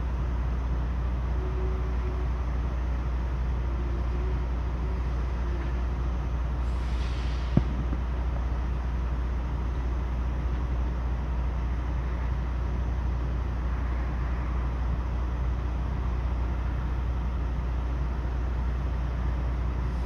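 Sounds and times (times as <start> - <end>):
diesel trucks idling: 0.0 - 20.0
brief hiss: 6.6 - 7.9.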